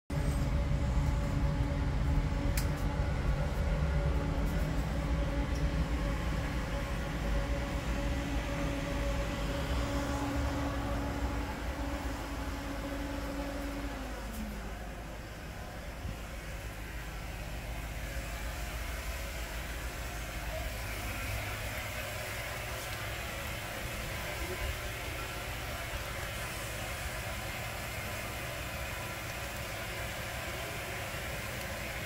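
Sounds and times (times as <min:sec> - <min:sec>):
machine rumbling and humming: 0:00.1 - 0:32.0.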